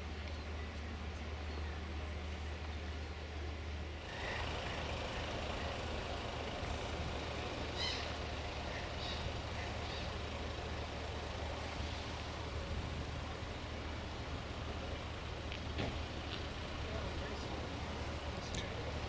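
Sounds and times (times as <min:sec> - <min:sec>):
boat engine idling: 0:00.0 - 0:19.0
short high bird calls: 0:07.7 - 0:10.2.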